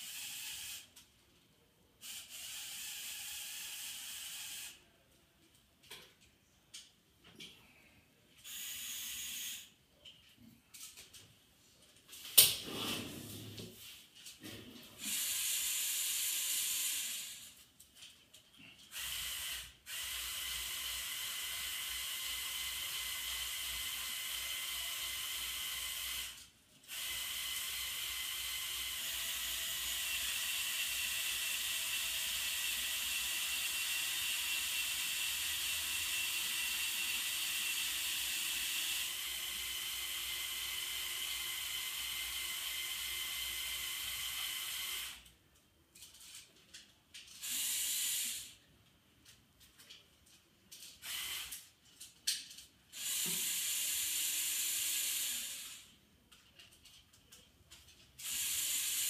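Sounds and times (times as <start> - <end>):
toy electric motors and gears: 0.0 - 1.1, 2.0 - 4.9, 8.4 - 9.8, 14.4 - 59.0.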